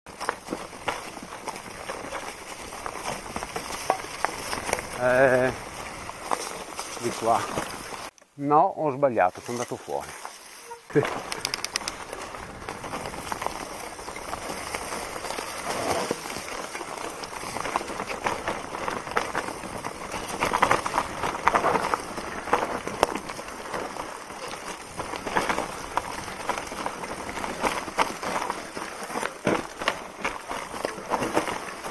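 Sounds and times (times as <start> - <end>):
bike knocking and rattling: 0.1 - 8.1, 10.2 - 31.9
bike tyres crunching over stones: 0.1 - 8.2, 9.1 - 31.9.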